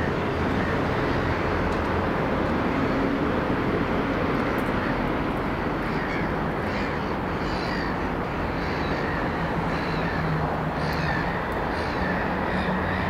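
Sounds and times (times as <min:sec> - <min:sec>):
diesel locomotive engine drone: 0:00.0 - 0:13.0
crow cawing: 0:05.8 - 0:13.0.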